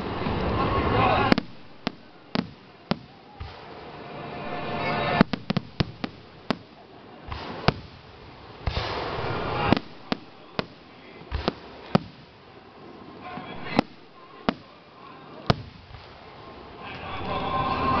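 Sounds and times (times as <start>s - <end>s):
fireworks bangs and cracks: 0.0s - 14.8s, 15.4s - 18.0s
firework shell hiss: 7.3s - 12.5s.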